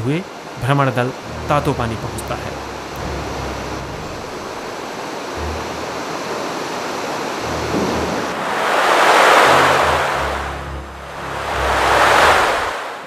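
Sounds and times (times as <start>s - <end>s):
river rushing over rapids: 2.4s - 13.0s.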